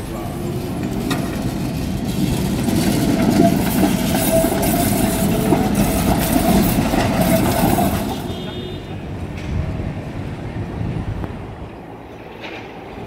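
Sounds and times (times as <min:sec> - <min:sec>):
tram wheels rumbling on rail: 0:00.0 - 0:13.0.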